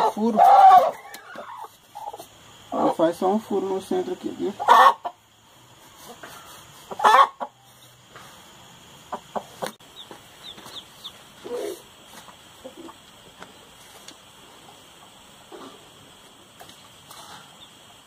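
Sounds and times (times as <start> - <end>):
chicken clucking: 0.0 - 3.0, 4.5 - 8.0, 9.0 - 13.5.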